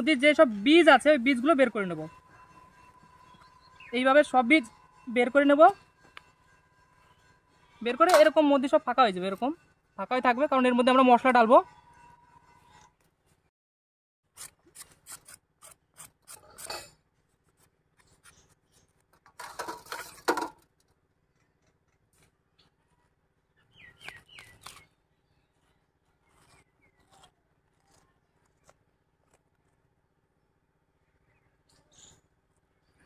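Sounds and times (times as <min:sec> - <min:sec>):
metal tapping steel plate: 0:07.8 - 0:08.8
knife scraping gourds: 0:14.3 - 0:20.4, 0:24.0 - 0:30.0.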